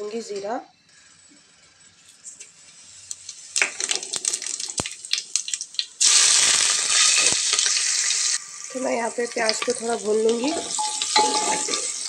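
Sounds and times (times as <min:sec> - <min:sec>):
seeds crackling in hot oil: 0:00.9 - 0:12.0
onions sizzling in oil: 0:02.3 - 0:12.0.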